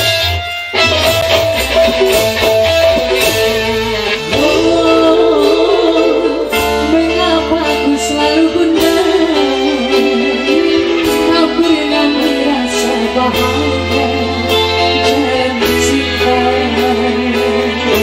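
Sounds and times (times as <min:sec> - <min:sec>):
band playing guitar and bass: 0:00.0 - 0:18.0
person singing wavering melody: 0:04.3 - 0:17.9.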